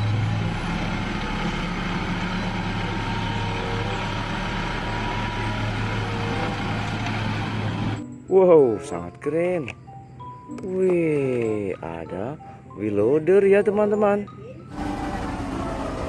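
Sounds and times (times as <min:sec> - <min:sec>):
truck engine running: 0:00.0 - 0:08.2, 0:14.7 - 0:16.0.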